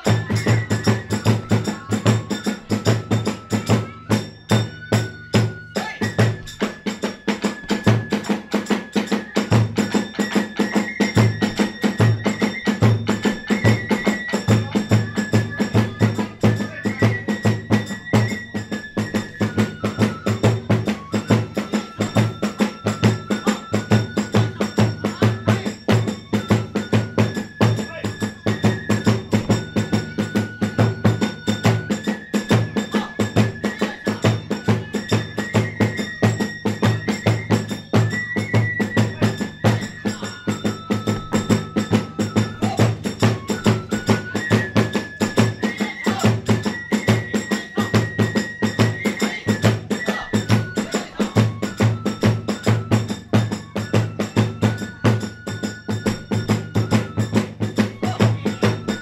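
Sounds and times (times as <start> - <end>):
hand cymbals: 0.0 - 59.0
high bamboo flute melody: 0.0 - 59.0
taiko drum beating: 38.6 - 46.6.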